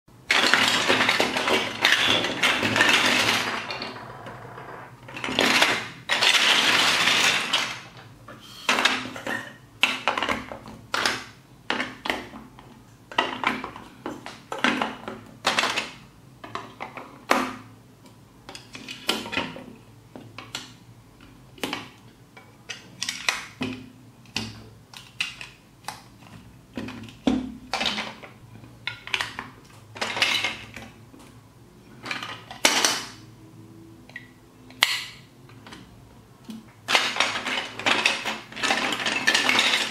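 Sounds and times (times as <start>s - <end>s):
plastic blocks clattering: 0.3s - 8.1s, 8.7s - 12.3s, 26.8s - 31.0s, 32.0s - 33.2s, 36.8s - 39.9s.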